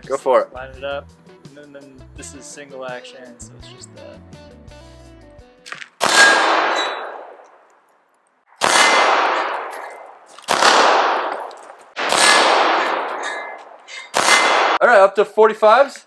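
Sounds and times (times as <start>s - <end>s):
pistol shots ringing: 6.0s - 7.5s, 8.5s - 14.8s.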